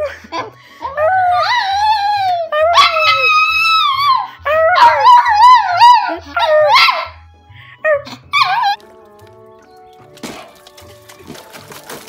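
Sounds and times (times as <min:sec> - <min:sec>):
small dog howling: 0:01.0 - 0:07.2, 0:07.9 - 0:08.8
background music with steady beat: 0:04.4 - 0:12.0.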